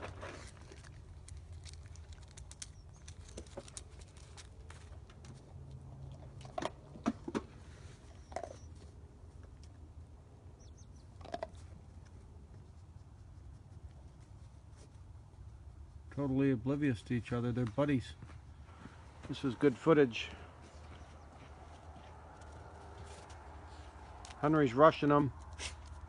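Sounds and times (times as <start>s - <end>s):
dog crunching dry food: 0.0s - 6.9s, 8.2s - 8.7s, 11.2s - 11.8s.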